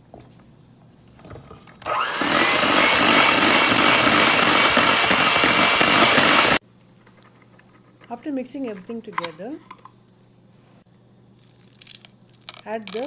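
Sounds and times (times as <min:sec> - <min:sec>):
electric hand mixer whirring: 0:01.9 - 0:06.6.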